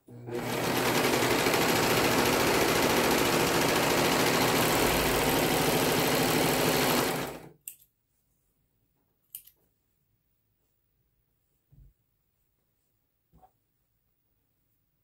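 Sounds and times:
serger sewing machine running: 0.0 - 7.6.

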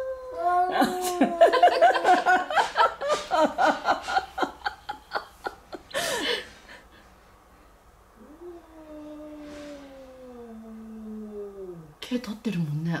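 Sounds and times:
person chuckling: 0.7 - 7.0.

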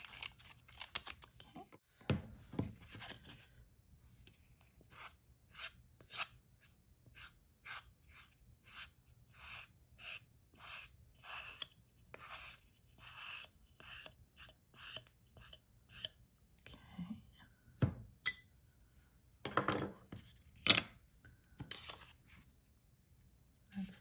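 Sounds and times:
palette knife scraping glue on wood: 4.9 - 16.2.

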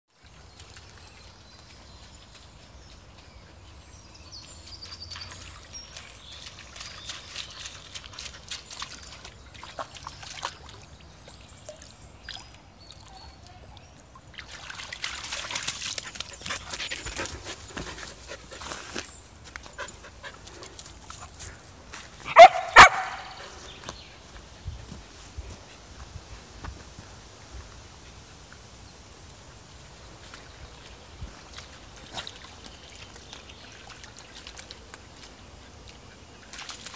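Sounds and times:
trickling stream: 0.1 - 36.9
dog splashing through water: 4.6 - 12.5, 14.2 - 19.1, 30.2 - 36.9
dog barking: 22.3 - 23.4.

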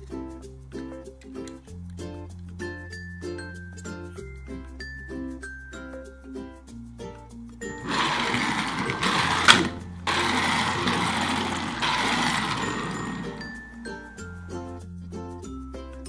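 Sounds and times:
light background music: 0.0 - 16.0
loud rough whirring: 7.7 - 13.7.

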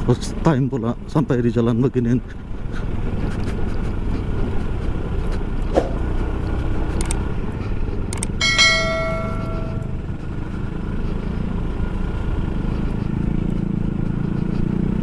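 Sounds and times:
scooter engine drone: 2.2 - 15.0
tyre noise: 3.2 - 6.7
bell-like chime: 8.4 - 10.1.

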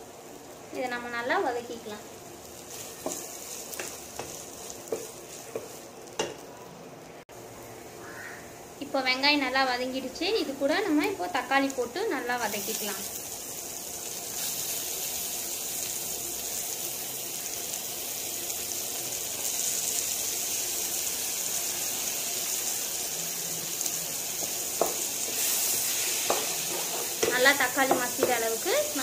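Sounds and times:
vegetables sizzling in frying pan: 0.0 - 29.0
spatula knocking against pan: 24.8 - 25.4, 26.2 - 28.4.

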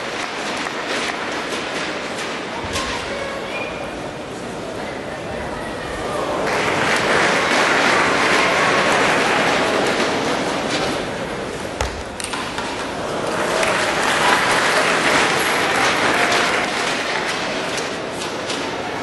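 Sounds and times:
crowd applauding: 6.2 - 11.0, 12.4 - 18.1.

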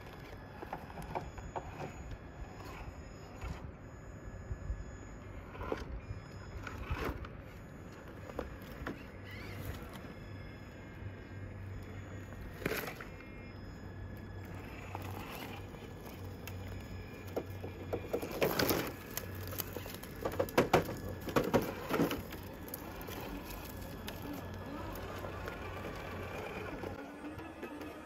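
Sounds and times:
faint steady hum: 0.0 - 28.0
toy car knocking and scraping on stone: 14.6 - 27.0.

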